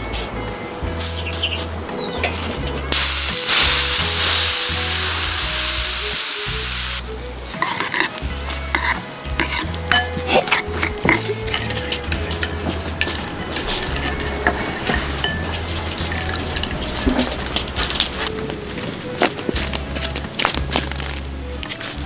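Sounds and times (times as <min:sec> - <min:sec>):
hot oil sizzling: 0:02.3 - 0:11.4
metal ladle scraping a bowl: 0:07.5 - 0:17.6.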